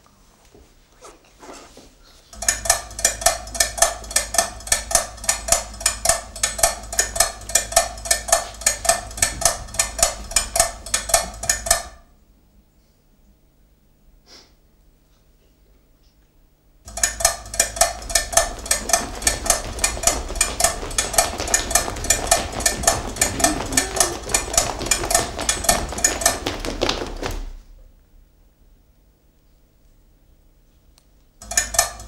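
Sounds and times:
fast sharp clicking knocks: 2.4 - 12.0, 16.9 - 27.6, 31.4 - 32.0.

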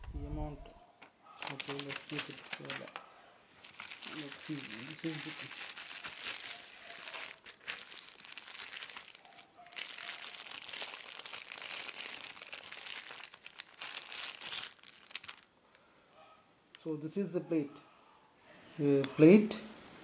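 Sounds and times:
plastic packaging crinkling: 1.0 - 15.8.

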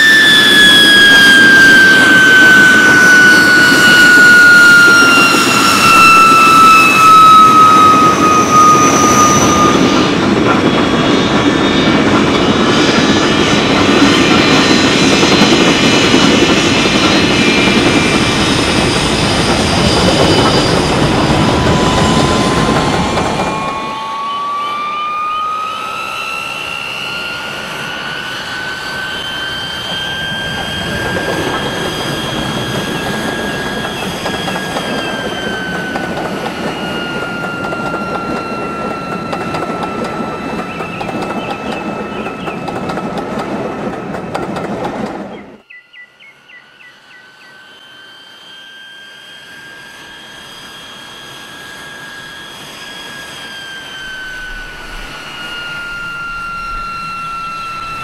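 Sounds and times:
steady rushing noise: 0.0 - 24.3, 52.0 - 58.0
model turbine whine: 0.0 - 58.0.

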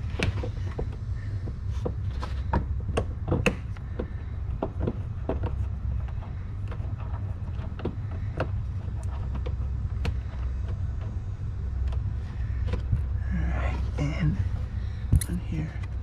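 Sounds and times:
steady low rumble: 0.0 - 16.0
tools clicking and knocking: 0.1 - 11.2.

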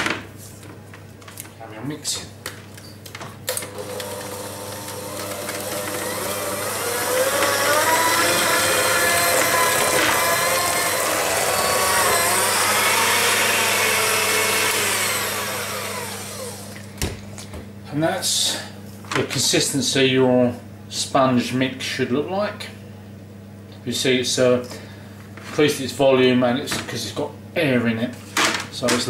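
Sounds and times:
electric hand mixer whining: 3.5 - 16.9.

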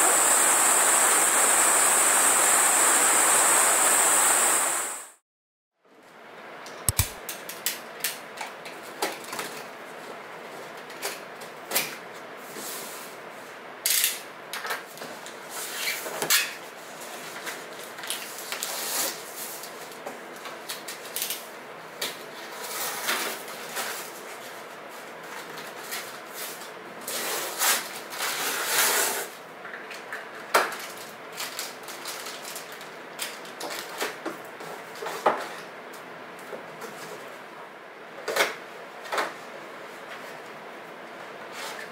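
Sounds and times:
packing tape tearing off cardboard: 6.9 - 7.2.

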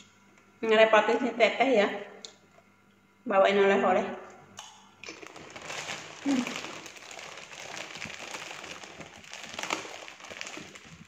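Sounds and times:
crackers being chewed: 4.6 - 11.0
plastic bag crinkling: 5.0 - 11.0
person humming: 6.2 - 6.8.

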